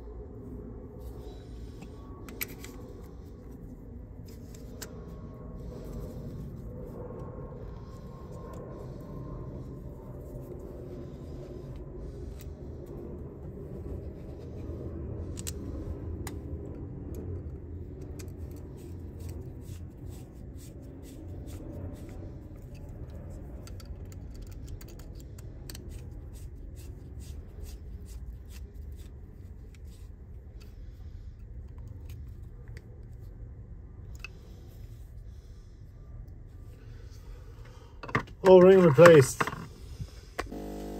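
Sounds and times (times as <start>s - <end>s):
steady low hum: 0.0s - 40.9s
plastic and metal parts clicking: 22.6s - 26.1s.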